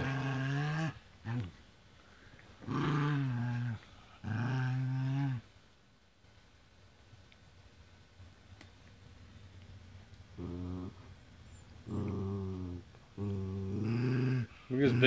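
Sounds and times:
dog growling: 0.0s - 1.6s, 2.6s - 5.4s, 10.4s - 11.1s, 11.8s - 15.0s.

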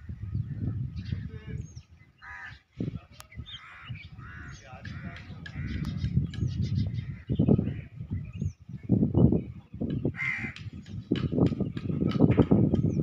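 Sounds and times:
crows cawing: 2.2s - 2.6s, 3.6s - 6.1s, 10.2s - 10.7s.

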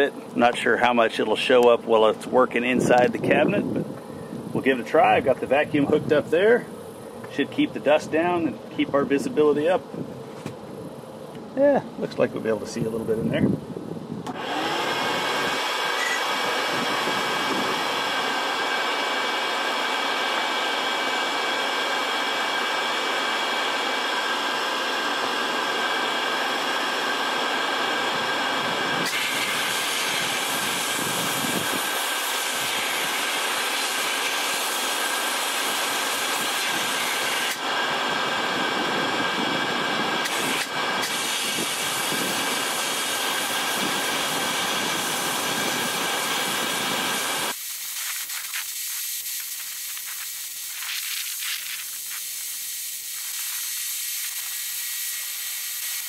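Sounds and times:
shop vacuum whine: 0.0s - 56.0s
compressed air hissing from blast gun: 29.0s - 37.7s, 40.2s - 56.0s.

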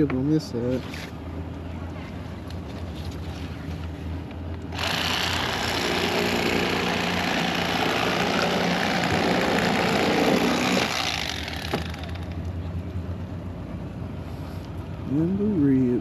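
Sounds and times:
electric fillet knife cutting fish: 4.8s - 12.1s.

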